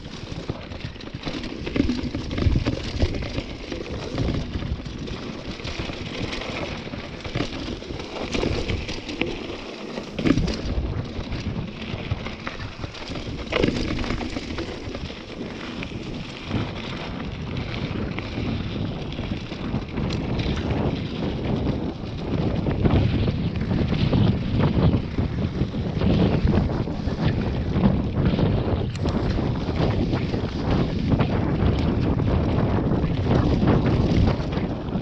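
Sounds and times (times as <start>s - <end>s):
bike rattling: 0.0s - 35.0s
bike tyres crunching over stones: 0.0s - 35.0s
bike knocking over bumps: 1.2s - 11.4s, 12.9s - 15.3s.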